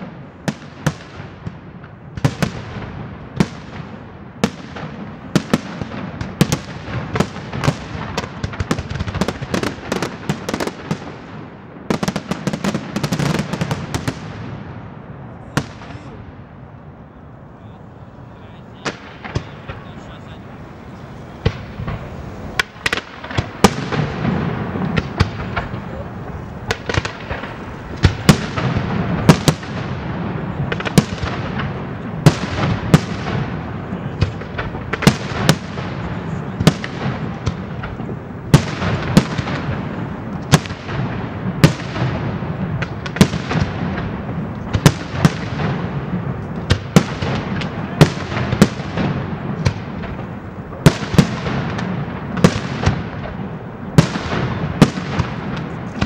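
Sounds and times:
fireworks bangs: 0:00.0 - 0:56.0
steady din: 0:15.7 - 0:31.7.

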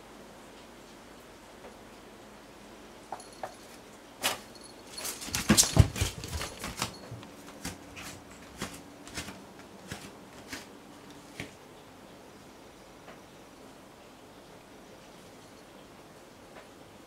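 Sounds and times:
cat scuffling among shoes: 0:03.4 - 0:11.6.

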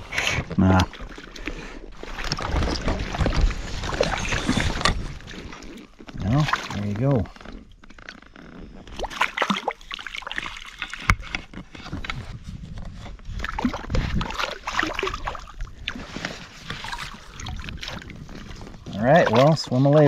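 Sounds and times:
water sloshing and splashing: 0:00.0 - 0:20.0
knocks and rustles of handling: 0:10.8 - 0:14.3.

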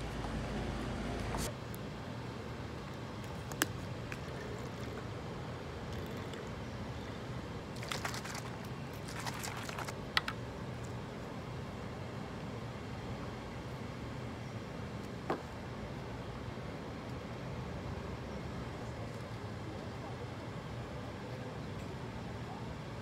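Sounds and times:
bottle shaking rattles: 0:07.7 - 0:10.4.

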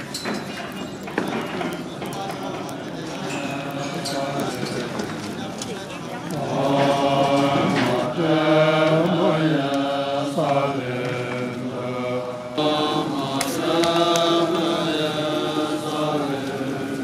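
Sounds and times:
monks chanting in sustained notes: 0:03.1 - 0:05.3, 0:06.3 - 0:17.0.

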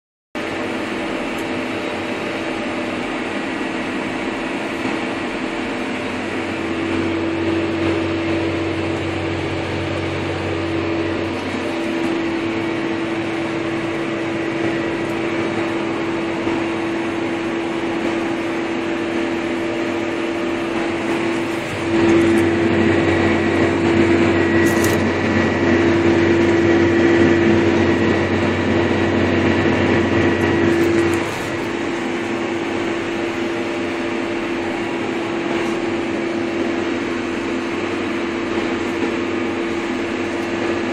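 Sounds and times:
steady hum: 0:00.4 - 0:40.9
tractor diesel engine droning: 0:00.4 - 0:40.9
deep rumble: 0:06.1 - 0:33.5.

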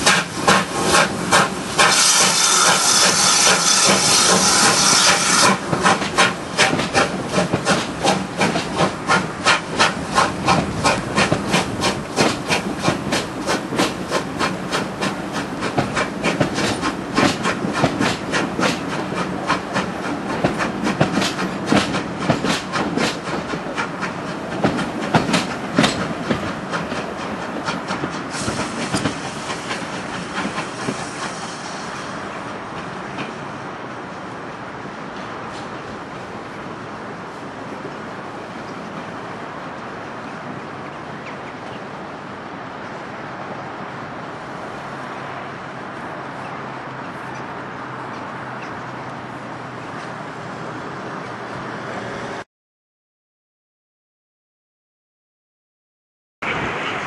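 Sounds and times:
loud hiss of steam: 0:00.0 - 0:20.1, 0:28.1 - 0:32.4
steam locomotive exhaust beats: 0:00.0 - 0:32.2.

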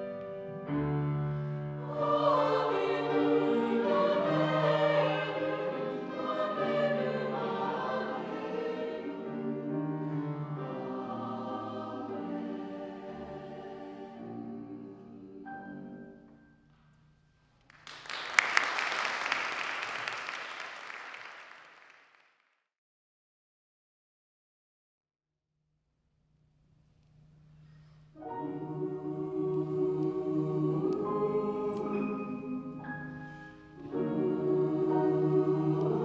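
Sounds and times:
choir singing: 0:00.0 - 0:16.4, 0:28.2 - 0:36.0
audience applause: 0:17.7 - 0:22.3.

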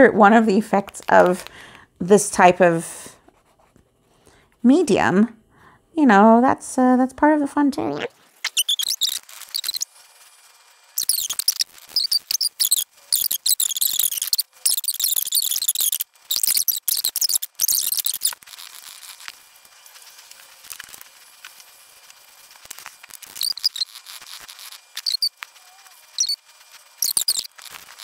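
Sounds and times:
art tools scratching on paper: 0:03.3 - 0:03.8, 0:08.5 - 0:10.4, 0:11.0 - 0:28.0
paint pen squeaking on paper: 0:07.9 - 0:09.9, 0:11.0 - 0:19.4, 0:22.6 - 0:28.0.

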